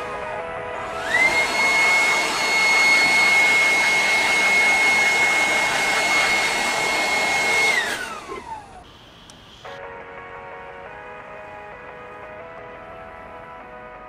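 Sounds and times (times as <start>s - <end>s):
leaf blower whining: 0.0s - 9.8s.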